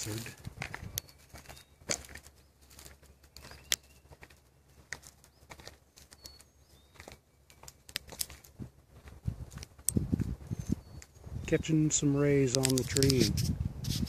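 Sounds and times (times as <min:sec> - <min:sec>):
sharp clicks and crackles: 0:00.0 - 0:03.9, 0:04.9 - 0:08.6, 0:09.5 - 0:10.0, 0:12.4 - 0:13.5
high bird chirps: 0:00.8 - 0:04.2, 0:05.2 - 0:07.9, 0:10.4 - 0:11.7.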